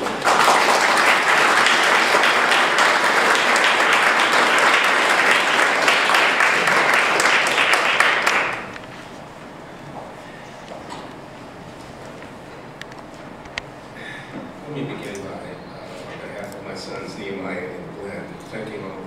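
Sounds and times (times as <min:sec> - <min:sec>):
audience applause: 0:00.0 - 0:08.8.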